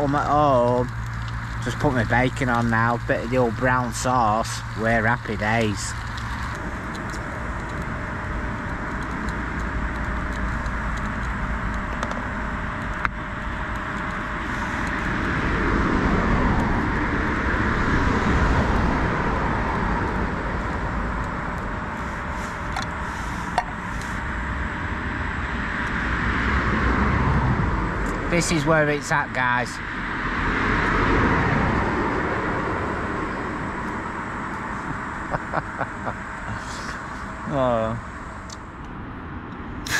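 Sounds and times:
road traffic: 0:00.0 - 0:39.9
car passing close by: 0:25.7 - 0:28.7, 0:29.7 - 0:34.2.

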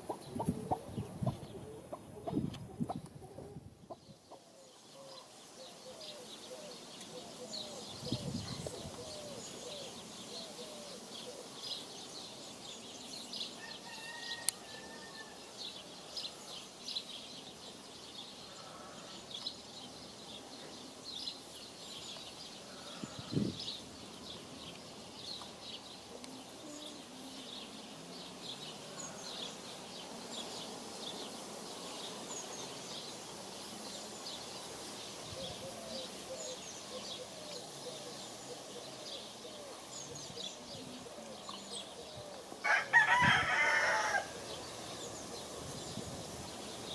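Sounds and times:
small birds chirping: 0:00.0 - 0:46.9.

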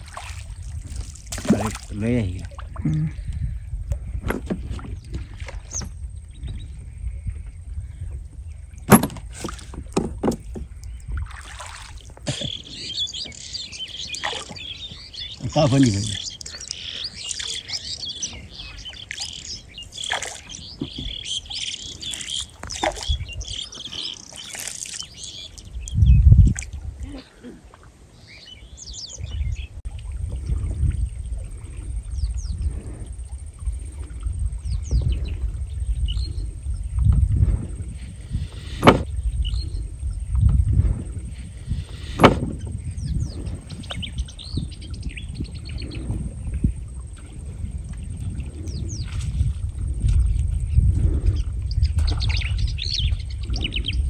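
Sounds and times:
wind noise on microphone: 0:00.0 - 0:24.0, 0:24.6 - 0:27.3, 0:28.8 - 0:54.0
birds chirping: 0:00.0 - 0:26.4, 0:28.2 - 0:54.0
wooden knocks and clunks: 0:04.0 - 0:06.0, 0:08.8 - 0:10.8, 0:38.7 - 0:39.1, 0:42.1 - 0:42.8.

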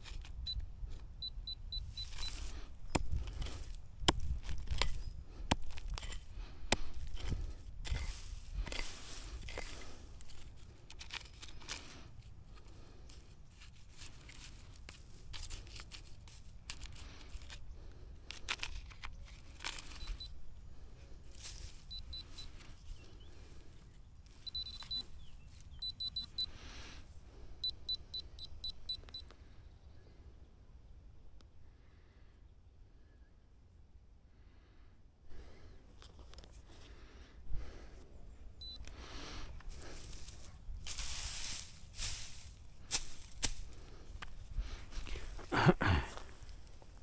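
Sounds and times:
metal detector beeps: 0:00.2 - 0:03.6, 0:19.7 - 0:20.4, 0:21.5 - 0:22.8, 0:24.2 - 0:26.6, 0:27.6 - 0:29.3, 0:38.6 - 0:39.0.

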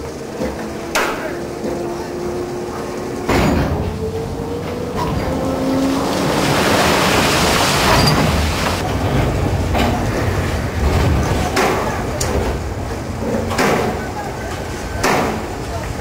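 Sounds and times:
coal pouring and sliding: 0:05.8 - 0:08.9.

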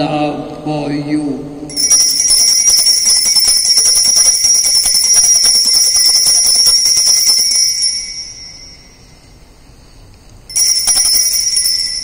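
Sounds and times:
altar bells jingling: 0:01.7 - 0:09.6, 0:10.4 - 0:12.0.

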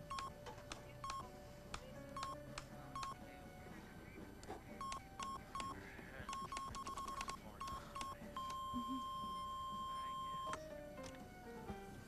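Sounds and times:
censor bleep tone: 0:06.3 - 0:10.6.

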